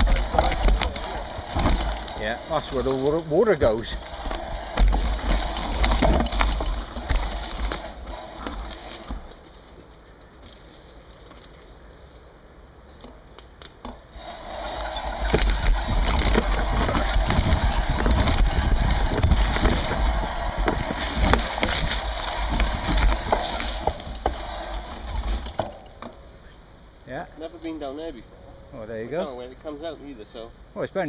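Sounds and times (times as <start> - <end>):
bike rattles and knocks: 0.0 - 11.7, 13.0 - 26.2
bike tyres on dirt trail: 0.0 - 26.7
low rumble: 14.8 - 25.6.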